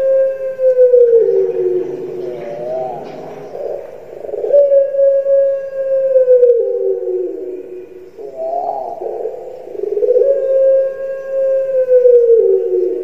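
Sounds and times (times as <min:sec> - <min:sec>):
dove cooing: 0:00.0 - 0:13.0.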